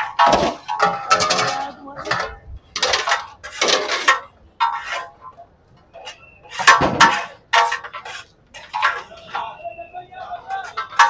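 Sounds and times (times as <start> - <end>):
steel plates clinking: 0.0 - 11.0
metal scoop scraping a pot: 6.0 - 9.6.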